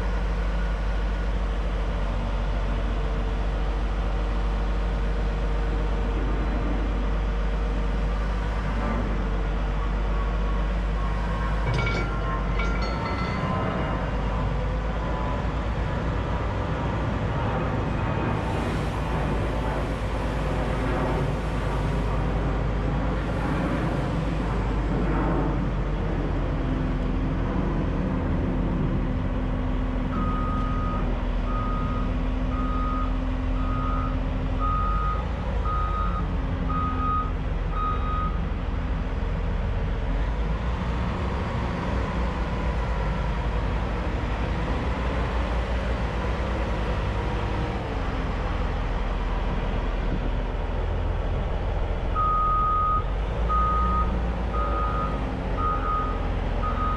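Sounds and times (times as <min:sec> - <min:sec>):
diesel engine running: 0:00.0 - 0:56.9
reversing alarm beeps: 0:30.2 - 0:38.4, 0:52.2 - 0:56.9.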